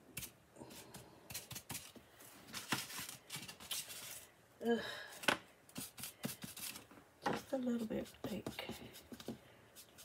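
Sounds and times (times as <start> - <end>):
paintbrush scratchy strokes: 7.8 - 10.0.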